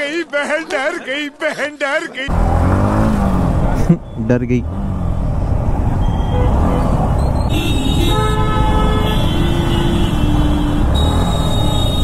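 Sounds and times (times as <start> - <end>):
low rumble of traffic: 2.3 - 12.0
vehicle horns honking: 6.0 - 12.0.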